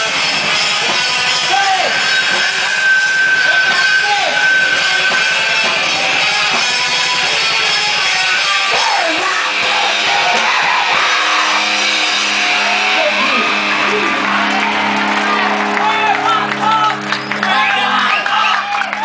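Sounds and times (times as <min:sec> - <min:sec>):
rock band playing loud: 0:00.0 - 0:19.0
sustained guitar chord ringing: 0:00.4 - 0:08.4.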